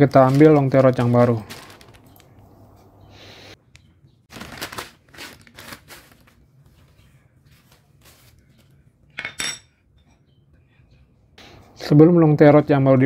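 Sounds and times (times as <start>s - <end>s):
plastic bag rustling: 0.0s - 3.0s, 4.3s - 8.4s.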